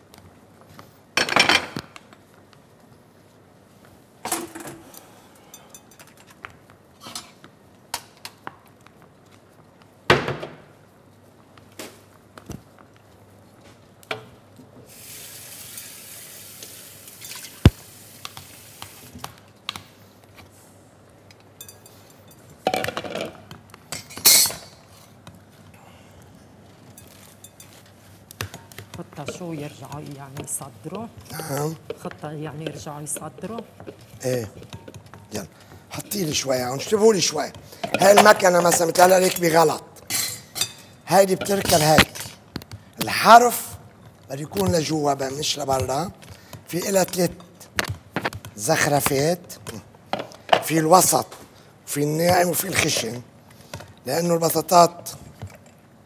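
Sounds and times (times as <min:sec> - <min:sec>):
hiss: 0:14.9 - 0:17.0.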